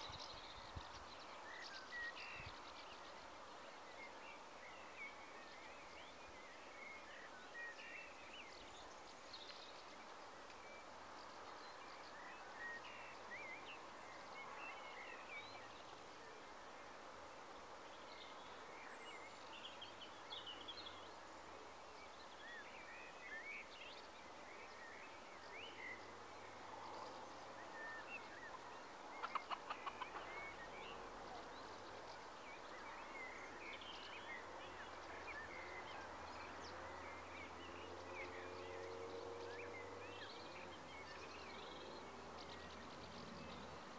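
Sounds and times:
steady low hiss: 0.0s - 43.9s
birds chirping: 17.9s - 43.9s.

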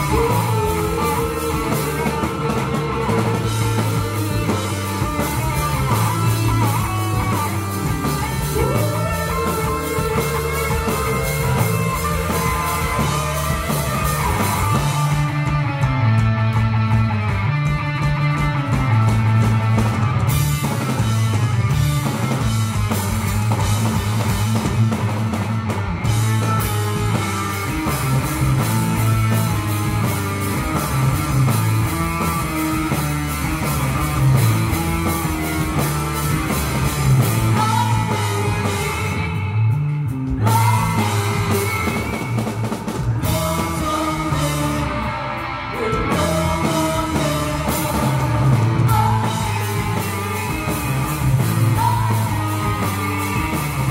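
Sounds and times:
live rock band playing: 0.0s - 53.9s
woman singing: 37.5s - 39.4s, 40.4s - 42.4s, 43.2s - 50.4s.

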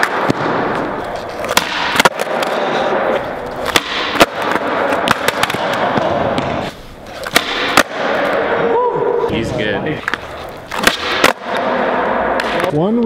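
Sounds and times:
skateboard tail popping and landing: 0.0s - 8.5s
skateboard wheels rolling on concrete: 0.0s - 8.6s.

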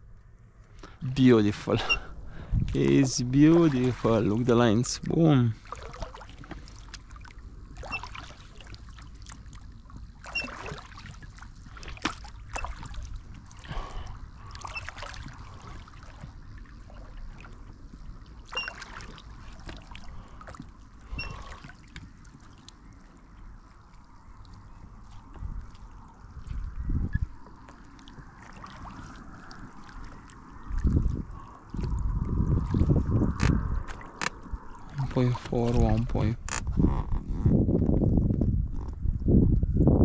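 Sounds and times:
oar strokes: 1.2s - 37.9s
water splashing and dripping: 1.7s - 36.2s
oar squeak: 1.8s - 2.2s, 7.8s - 8.3s, 10.2s - 10.8s, 12.5s - 12.9s, 14.5s - 15.0s, 18.5s - 19.2s, 21.1s - 21.7s, 36.5s - 37.6s.

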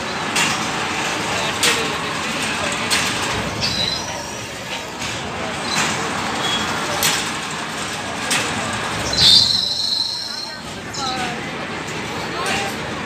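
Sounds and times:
fairground ride machinery rattling: 0.0s - 13.0s
machinery clank: 0.1s - 10.9s
high metallic squeal: 3.5s - 4.4s, 9.0s - 10.6s.

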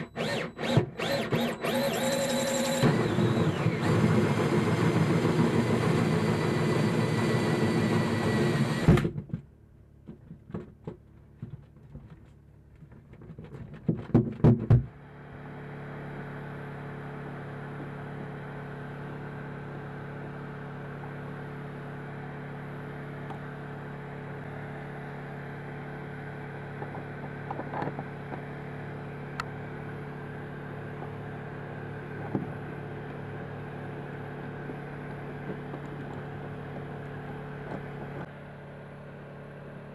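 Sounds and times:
power drill spinning: 0.0s - 9.1s.

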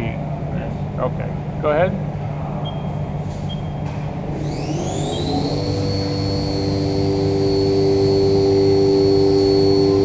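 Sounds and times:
mill spindle whine: 3.9s - 10.0s.

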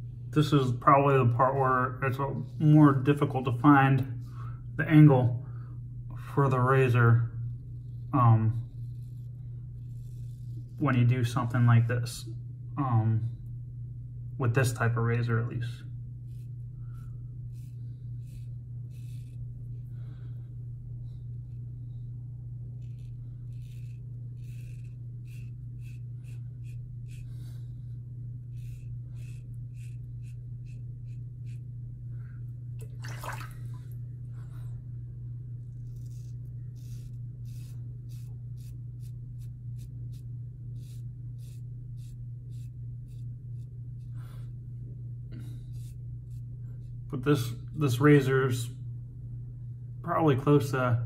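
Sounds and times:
low hum: 0.0s - 51.0s
razor scraping stubble: 7.5s - 11.7s, 16.2s - 20.0s, 21.1s - 31.8s, 35.6s - 44.6s, 45.3s - 47.7s.

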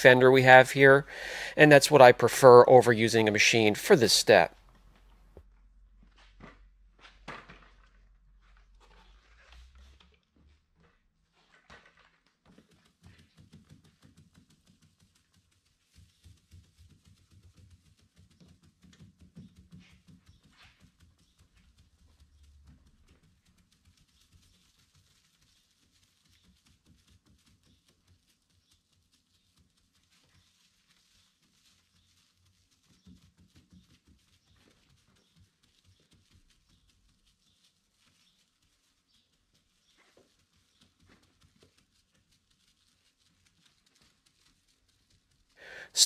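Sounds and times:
sandpaper rubbing on paint: 24.0s - 28.5s, 29.3s - 44.6s.

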